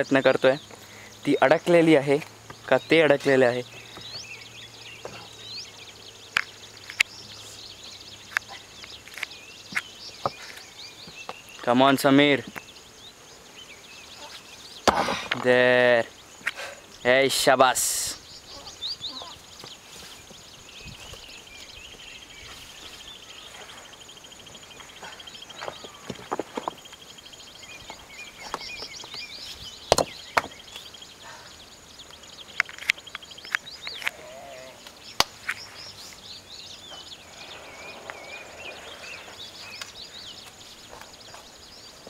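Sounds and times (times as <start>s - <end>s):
birds chirping: 0.0s - 42.0s
knocks and clicks on rocks: 25.6s - 26.8s, 29.9s - 30.6s.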